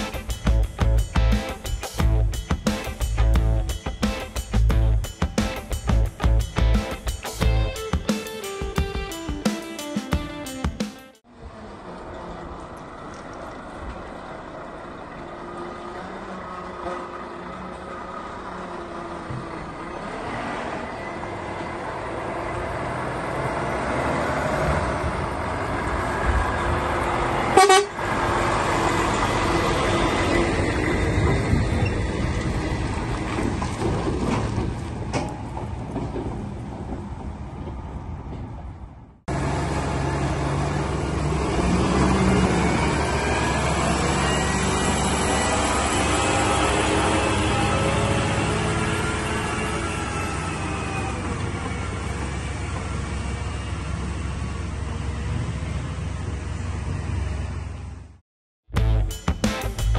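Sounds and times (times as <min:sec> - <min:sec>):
heavy lorry engine: 0:11.2 - 0:58.2
horn toot: 0:27.6 - 0:28.0.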